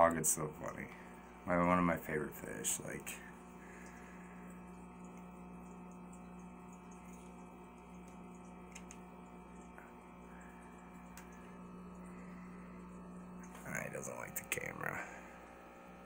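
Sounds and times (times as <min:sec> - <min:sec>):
aquarium equipment humming: 0:00.0 - 0:16.0
faint clicks: 0:08.0 - 0:09.1, 0:11.0 - 0:11.4.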